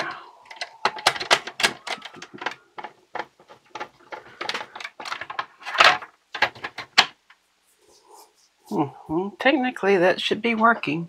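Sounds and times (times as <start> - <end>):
plastic clicks and knocks: 0.0 - 7.4.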